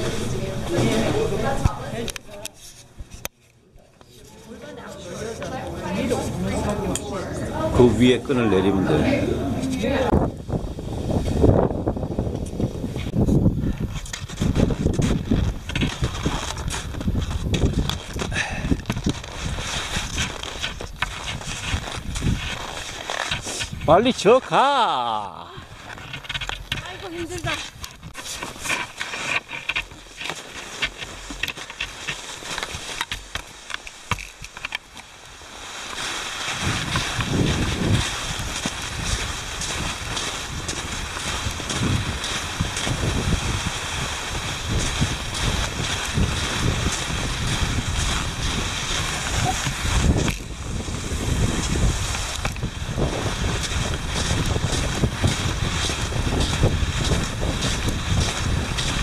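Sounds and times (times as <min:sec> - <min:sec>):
skis sliding in snow track: 0:00.0 - 0:02.8, 0:10.7 - 0:59.0
ski poles planting in snow: 0:00.0 - 0:59.0
light clicks and scrapes: 0:02.0 - 0:06.0, 0:13.9 - 0:23.9, 0:25.8 - 0:35.1
wind on microphone: 0:05.8 - 0:24.1, 0:36.4 - 0:59.0.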